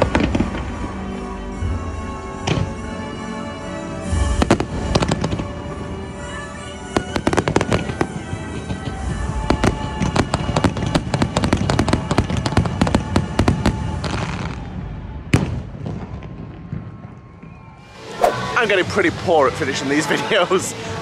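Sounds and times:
fireworks bangs and crackling: 0:00.0 - 0:00.9, 0:04.1 - 0:05.7, 0:07.0 - 0:17.5.

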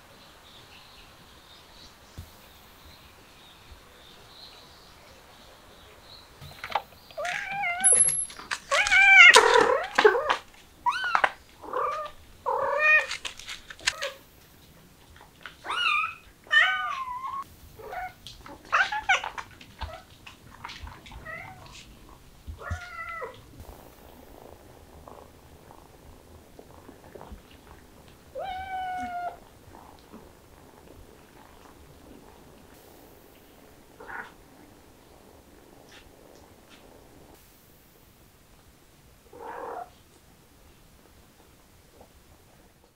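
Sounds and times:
cats meowing: 0:07.2 - 0:13.2, 0:15.6 - 0:32.7, 0:33.6 - 0:37.3, 0:39.3 - 0:39.9.

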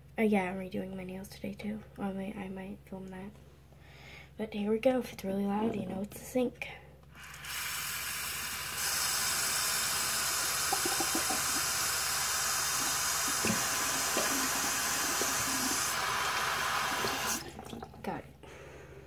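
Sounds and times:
tap water pouring into basin: 0:07.2 - 0:18.1.

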